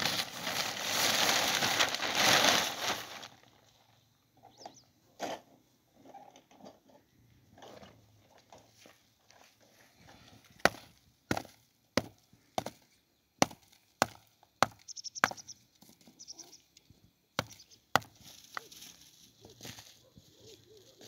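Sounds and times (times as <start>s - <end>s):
wood being chopped: 10.6s - 12.8s, 13.4s - 15.4s, 17.4s - 18.2s.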